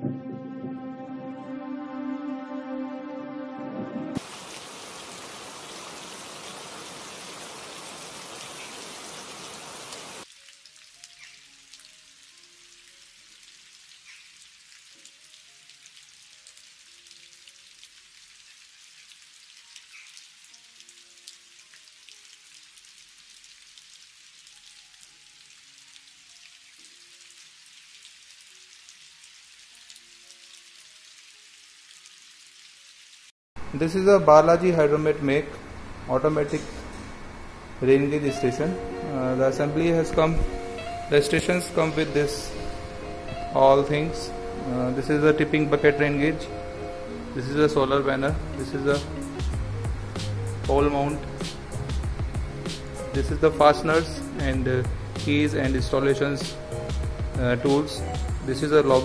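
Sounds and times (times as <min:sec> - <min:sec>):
soft musical notes: 0:00.0 - 0:04.2, 0:37.8 - 0:59.0
heavy rain downpour: 0:04.1 - 0:33.7, 0:47.1 - 0:59.0
light rain drops: 0:04.2 - 0:59.0.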